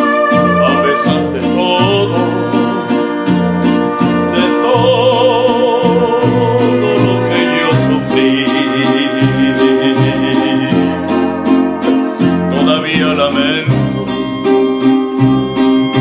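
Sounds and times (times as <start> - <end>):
strummed guitars: 0.0 - 16.0
trumpet: 0.0 - 16.0
violin: 0.0 - 16.0
deep bass notes: 0.3 - 16.0
male singer: 0.6 - 11.2, 12.4 - 14.0.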